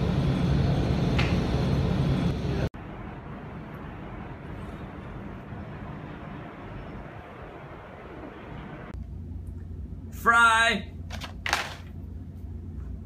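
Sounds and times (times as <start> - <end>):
low droning hum: 0.0 - 10.2.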